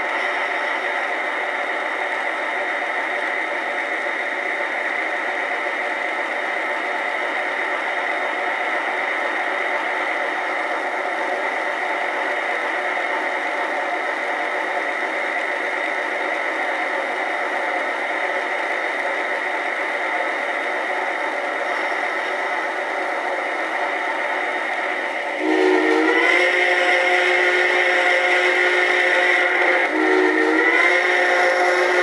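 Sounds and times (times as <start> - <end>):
model steam locomotive hiss: 0.0 - 32.0.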